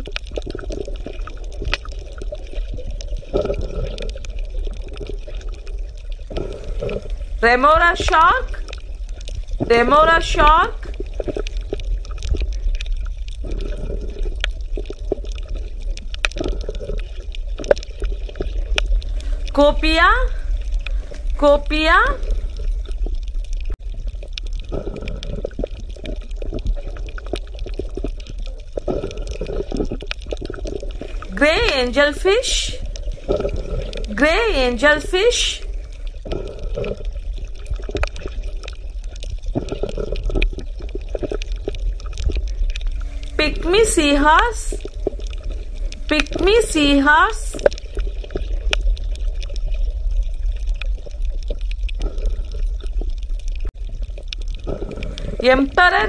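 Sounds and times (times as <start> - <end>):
small crackling clicks: 0.0 - 7.4, 8.1 - 9.7, 10.8 - 19.6, 20.4 - 21.4, 22.2 - 31.3, 35.7 - 43.4, 44.8 - 46.4, 47.6 - 56.0
underwater low rumble: 0.0 - 56.0
water bubbling and gurgling: 0.0 - 56.0
sharp underwater clicks: 10.4 - 19.6, 20.3 - 34.2.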